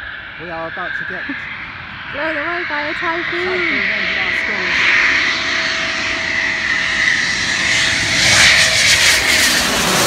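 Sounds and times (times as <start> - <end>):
jet engines whining overhead: 0.0 - 10.0.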